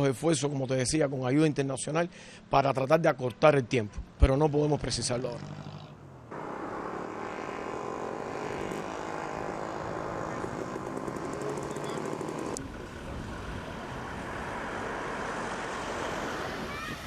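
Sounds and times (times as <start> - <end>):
helicopter engine: 6.3 - 16.6
helicopter rotor chop: 6.3 - 16.7.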